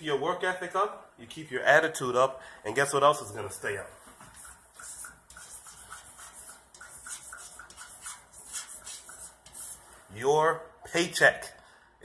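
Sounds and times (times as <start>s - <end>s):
chalk scratching on chalkboard: 4.0s - 10.1s.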